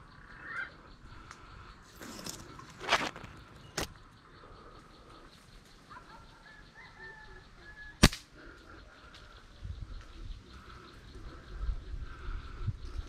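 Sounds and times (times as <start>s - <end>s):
slingshot snap: 8.0s - 8.3s.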